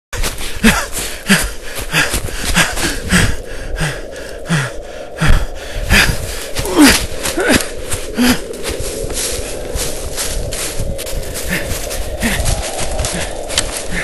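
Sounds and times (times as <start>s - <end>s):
person gasping breaths: 0.2s - 14.0s
footsteps on leaf litter: 6.5s - 14.0s.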